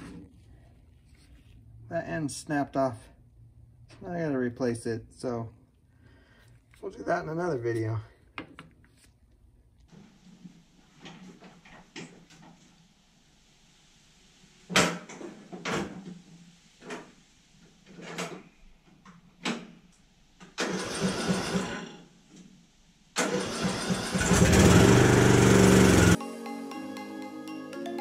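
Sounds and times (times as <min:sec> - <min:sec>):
mower engine running: 0:23.2 - 0:26.2.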